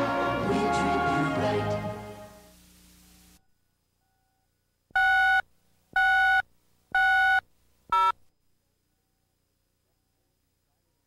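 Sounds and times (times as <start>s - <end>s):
electronic countdown beeps: 5.0s - 5.4s, 6.0s - 6.4s, 7.0s - 8.2s.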